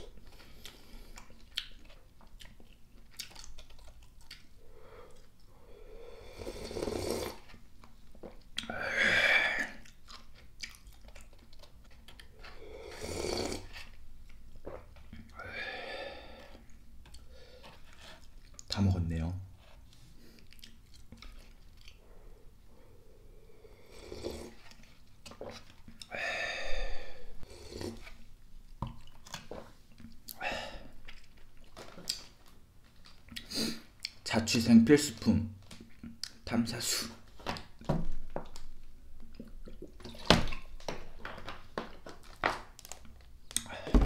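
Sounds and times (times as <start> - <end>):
wet chewing: 0.3 - 5.5, 9.7 - 12.6, 20.3 - 22.2, 31.0 - 34.2
slurping broth: 5.7 - 7.6, 12.3 - 14.0, 23.4 - 24.9, 26.7 - 28.2.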